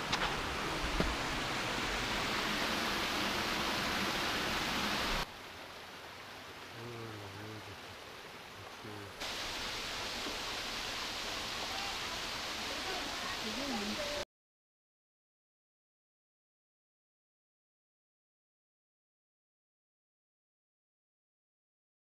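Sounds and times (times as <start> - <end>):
distant water: 0.0 - 14.2
stream water rushing over rocks: 0.0 - 14.2.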